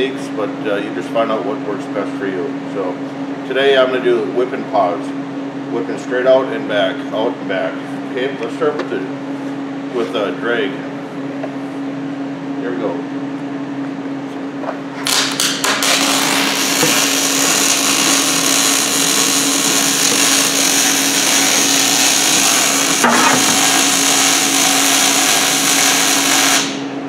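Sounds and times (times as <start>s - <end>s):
steady hum: 0.0s - 27.0s
welding arc crackling: 15.0s - 26.8s.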